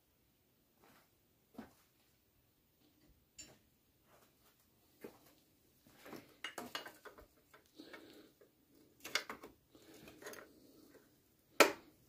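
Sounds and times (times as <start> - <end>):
spanner clinking and scraping on metal: 9.0 - 10.6.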